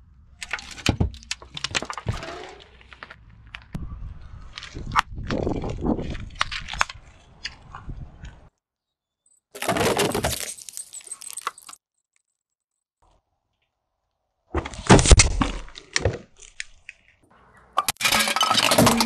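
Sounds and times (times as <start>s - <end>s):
tin can crunching under tyre: 4.6s - 7.8s.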